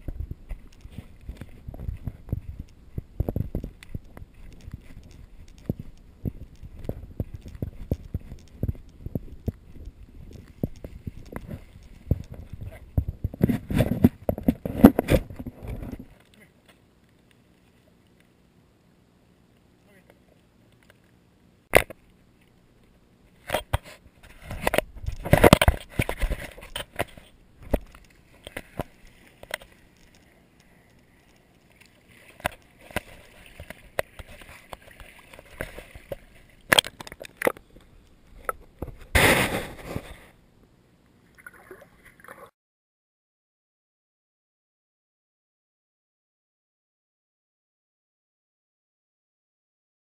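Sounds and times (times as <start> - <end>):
water sloshing and splashing: 23.4 - 40.3, 41.2 - 42.6.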